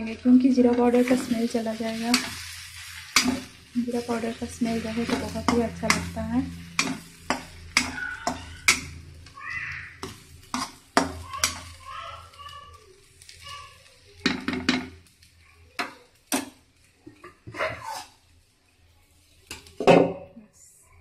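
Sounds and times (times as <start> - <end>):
spoon scraping metal pan: 0.6 - 9.1, 9.9 - 11.8, 16.3 - 18.3.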